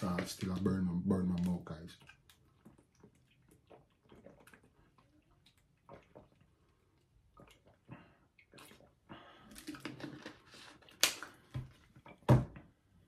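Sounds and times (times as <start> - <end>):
teeth brushing and splashing: 1.9 - 12.2.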